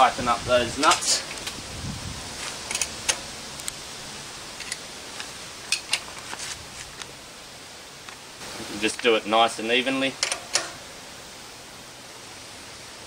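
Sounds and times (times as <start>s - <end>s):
steady hiss: 0.0s - 13.0s
spanner metallic clicks: 10.2s - 10.8s.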